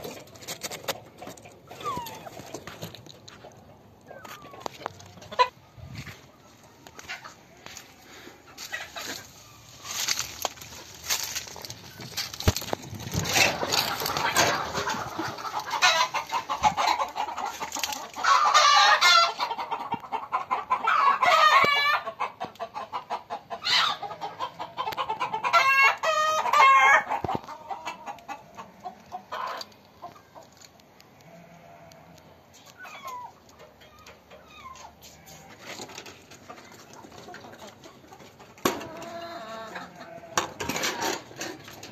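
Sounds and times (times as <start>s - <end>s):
chickens clucking: 0.0s - 41.9s.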